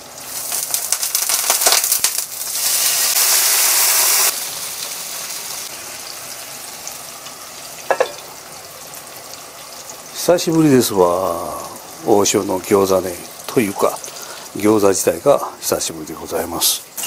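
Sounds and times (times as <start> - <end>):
oil deep-frying: 0.0 - 17.0
pan sizzling: 0.0 - 17.0
water crackling in hot oil: 0.0 - 17.0
hissing steam: 2.5 - 4.4.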